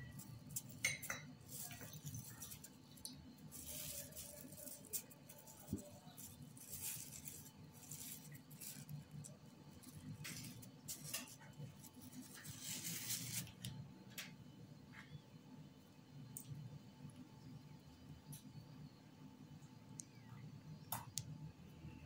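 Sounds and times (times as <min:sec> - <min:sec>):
plastic wrap crinkling: 0:00.0 - 0:13.8.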